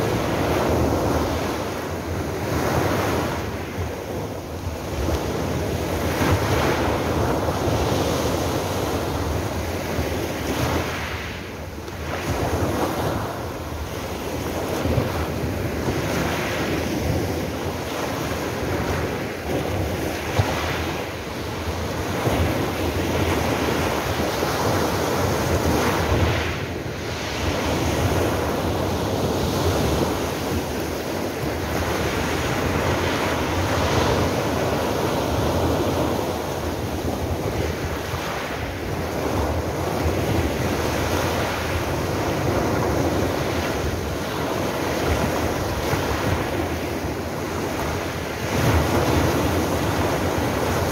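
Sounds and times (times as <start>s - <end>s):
wind buffeting microphone: 0.0s - 50.9s.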